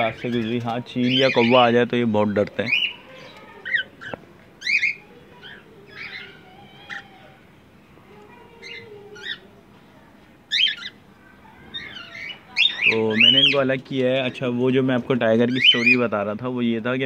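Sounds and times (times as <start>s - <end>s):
cockatiels chirping: 0.1s - 1.7s, 2.6s - 7.1s, 8.6s - 9.5s, 10.5s - 11.0s, 15.5s - 16.1s.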